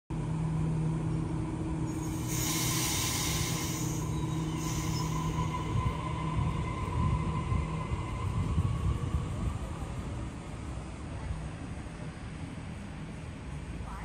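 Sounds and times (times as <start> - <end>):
electric train hum and whine: 0.1 - 14.0
high hiss: 1.9 - 5.9.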